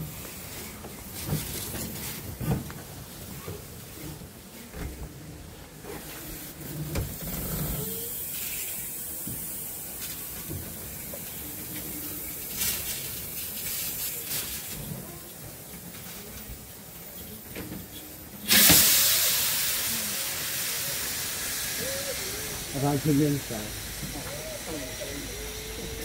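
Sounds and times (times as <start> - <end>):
steam locomotive hissing: 6.0 - 15.0, 18.4 - 26.0.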